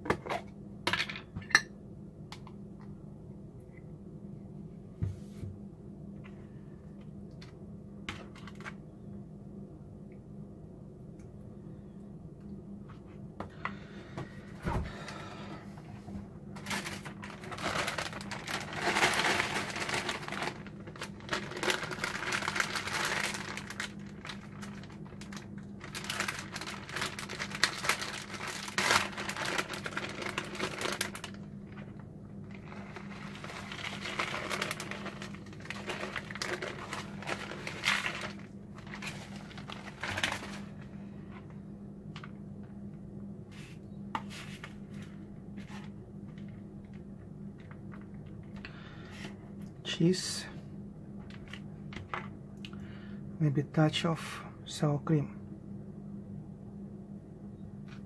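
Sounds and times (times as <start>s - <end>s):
steady low hum: 0.0s - 58.0s
crinkling and rustling: 7.0s - 8.8s, 14.2s - 49.4s, 51.2s - 52.4s.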